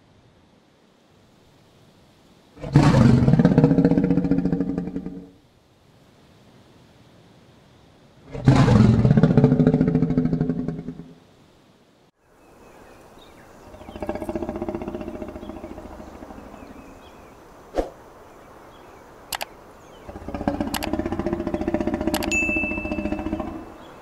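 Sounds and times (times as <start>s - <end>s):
lion roaring with deep grunts: 2.6s - 5.3s, 8.3s - 11.1s, 13.6s - 17.2s, 20.0s - 23.9s
sharp clicks: 19.3s - 19.6s, 20.4s - 23.3s.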